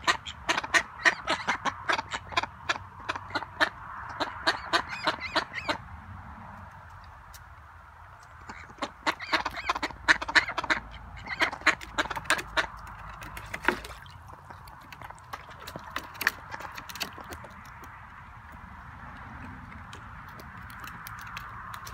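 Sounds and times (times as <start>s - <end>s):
ducks quacking: 0.0s - 5.8s, 8.4s - 13.6s.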